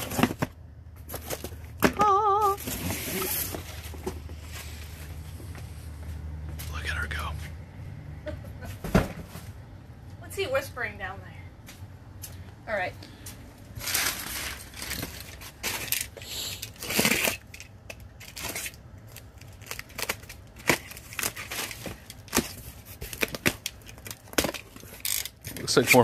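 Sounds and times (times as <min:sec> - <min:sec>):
plastic wrap rustling: 0:13.7 - 0:26.0
knife slitting packing tape: 0:15.8 - 0:17.6, 0:18.2 - 0:25.7.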